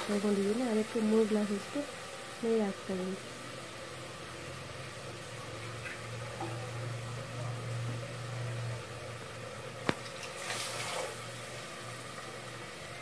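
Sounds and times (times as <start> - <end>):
low steady hum: 0.0 - 13.0
water splashing into pot: 9.8 - 11.6.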